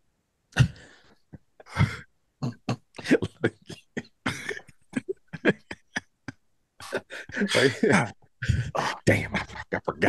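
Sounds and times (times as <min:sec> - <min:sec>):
man clearing throat: 0:00.6 - 0:01.0, 0:01.6 - 0:06.0.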